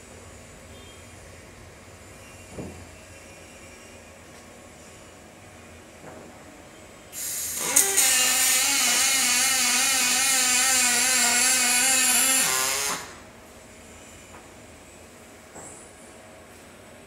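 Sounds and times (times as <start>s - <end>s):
welding arc buzzing and hissing: 7.2s - 13.3s.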